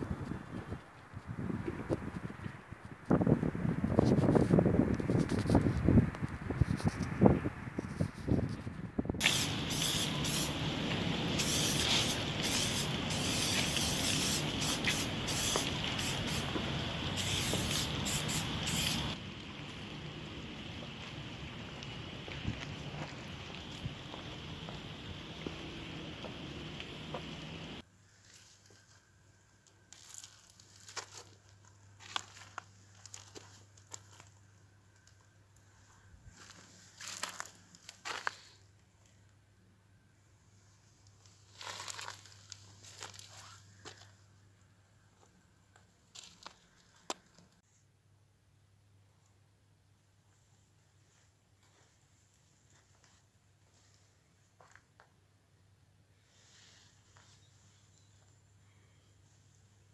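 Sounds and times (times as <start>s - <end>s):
low steady hum: 8.9s - 28.1s
spray paint can hissing: 9.2s - 19.2s
sharp crackles: 9.2s - 27.8s
rustling handling noise: 40.8s - 44.2s.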